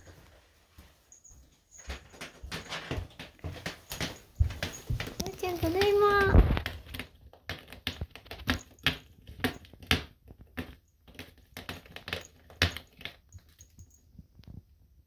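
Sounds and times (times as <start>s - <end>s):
cat scratching cardboard: 4.5s - 13.3s.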